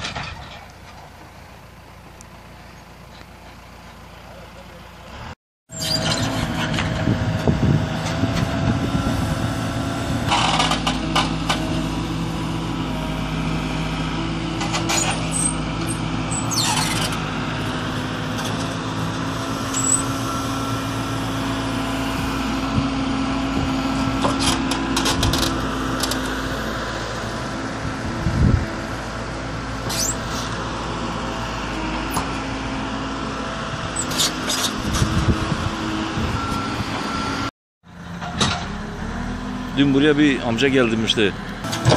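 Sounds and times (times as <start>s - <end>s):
rattles and clanks: 0.0s - 1.3s, 10.3s - 11.7s
diesel engine running at low revs: 0.0s - 41.9s.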